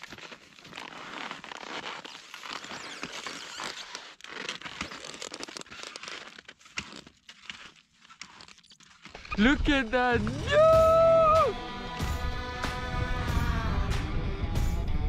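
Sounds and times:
skis crunching over snow: 0:00.0 - 0:10.2.

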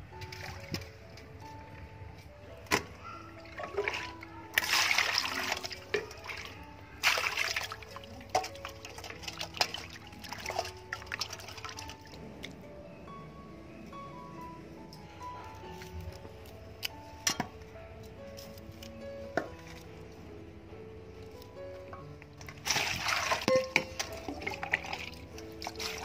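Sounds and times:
soft instrumental music: 0:00.0 - 0:26.0
water splashing in bowl: 0:03.4 - 0:12.5, 0:22.4 - 0:26.0.

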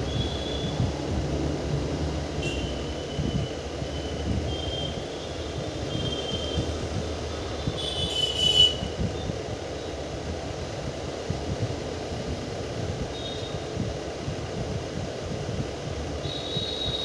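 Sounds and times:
high wheel squeals: 0:00.0 - 0:00.9, 0:02.6 - 0:06.8
train wheels rumbling on rails: 0:00.0 - 0:17.0.

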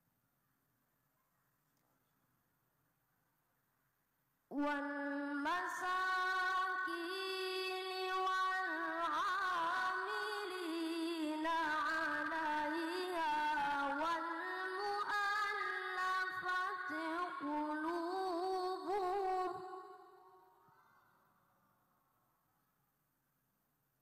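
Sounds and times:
boy reciting melodically: 0:04.5 - 0:20.3.

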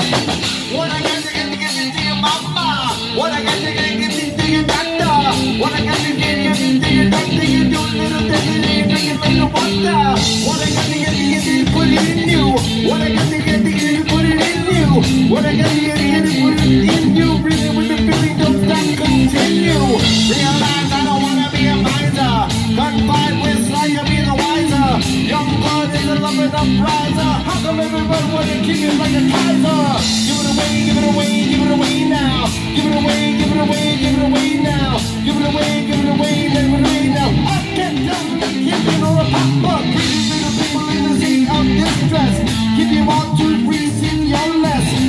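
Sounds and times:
person singing into microphone: 0:00.0 - 0:45.0
rock band playing: 0:00.0 - 0:45.0.

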